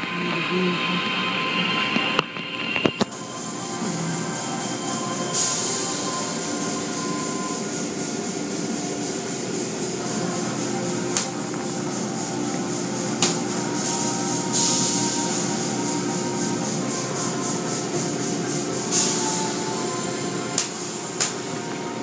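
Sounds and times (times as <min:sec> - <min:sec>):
machinery hum: 0:00.0 - 0:22.0.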